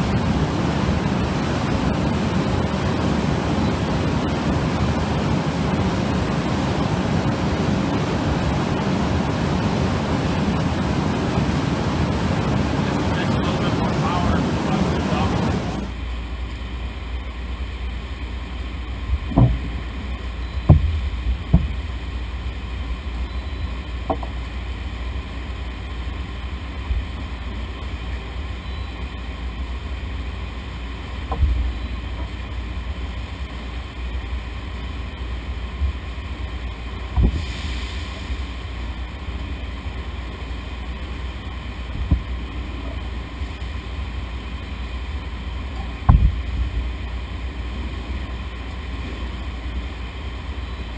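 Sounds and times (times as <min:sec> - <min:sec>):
processing machinery drone: 0:00.0 - 0:50.9
knocks in wooden bin: 0:19.3 - 0:19.8.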